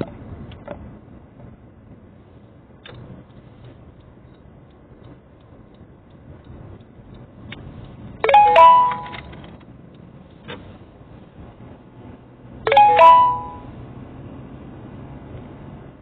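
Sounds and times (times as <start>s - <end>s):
car driving hum: 0.0s - 16.0s
two-note electronic chime: 8.2s - 9.2s, 12.7s - 13.7s.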